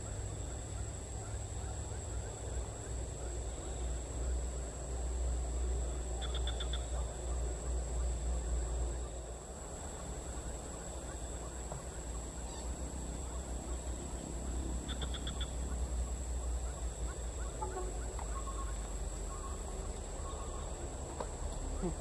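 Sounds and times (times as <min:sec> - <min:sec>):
insect drone: 0:00.0 - 0:22.0
rapid bird call: 0:05.9 - 0:22.0.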